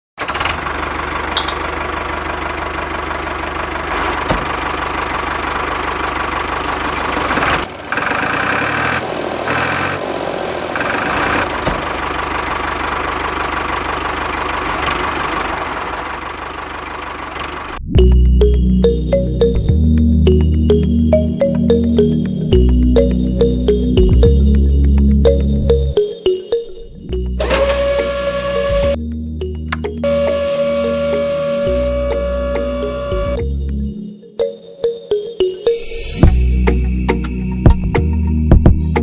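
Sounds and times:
toy tractor engine knocking: 4.0 - 9.9, 10.7 - 17.8
music: 17.8 - 39.0.

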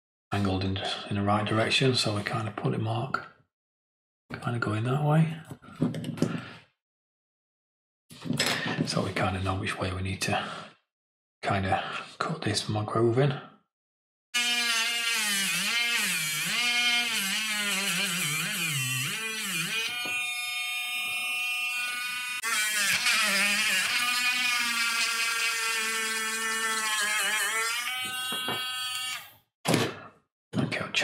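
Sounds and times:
rotary tool grinding wood: 14.4 - 29.3.

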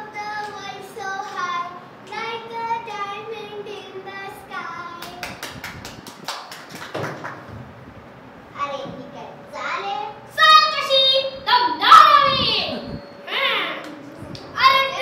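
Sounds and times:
quick hand clapping: 5.0 - 7.5.

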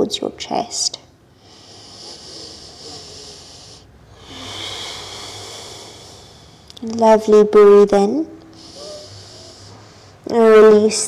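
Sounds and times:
woman breathing: 1.3 - 6.9, 8.4 - 10.3.

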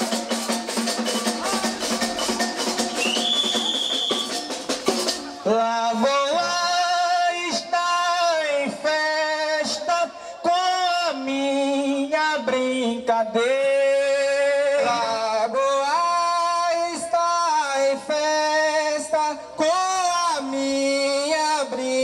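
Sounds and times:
percussion drums and rattles: 0.0 - 6.8
shrill whistle blast: 2.1 - 4.5
man singing: 5.4 - 22.0.

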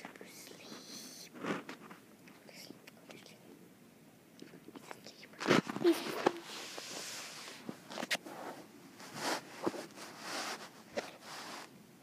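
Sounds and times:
rustling and scuffing: 5.4 - 11.7.

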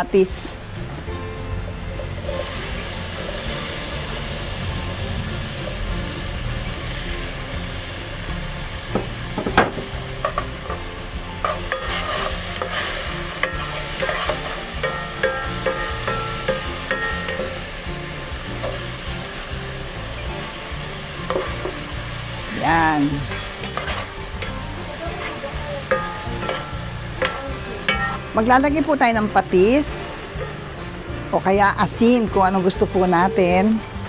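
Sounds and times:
vegetables sizzling in oil: 0.0 - 34.0.

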